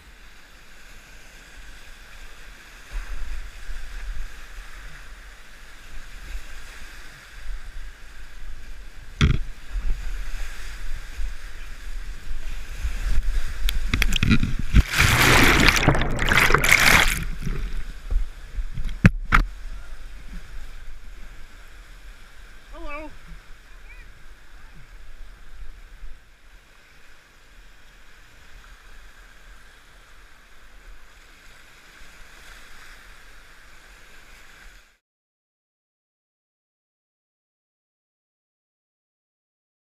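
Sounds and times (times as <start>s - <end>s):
whitewater rushing: 13.8s - 18.6s.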